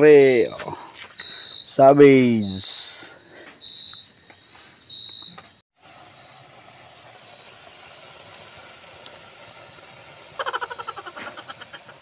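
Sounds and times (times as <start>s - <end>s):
pot simmering over wood fire: 5.8s - 12.0s.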